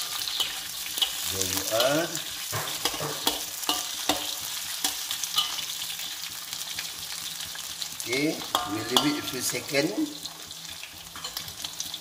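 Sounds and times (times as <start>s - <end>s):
metal spatula scraping a wok: 0.0s - 6.0s, 8.4s - 9.8s
food sizzling in a wok: 0.0s - 12.0s.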